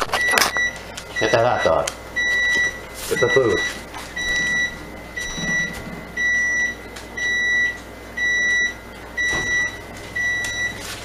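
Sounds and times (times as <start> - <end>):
oven timer beeping: 0.1 - 11.0.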